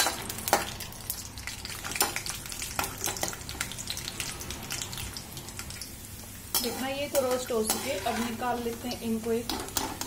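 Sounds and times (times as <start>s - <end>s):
peanuts sizzling in oil: 0.0s - 10.0s
spatula scraping a pan: 6.5s - 8.9s.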